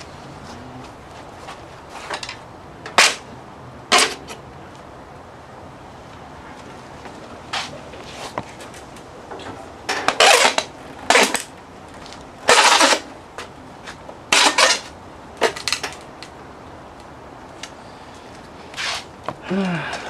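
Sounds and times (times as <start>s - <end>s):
pliers scraping metal bar: 9.9s - 11.5s, 12.5s - 13.1s, 14.3s - 16.0s.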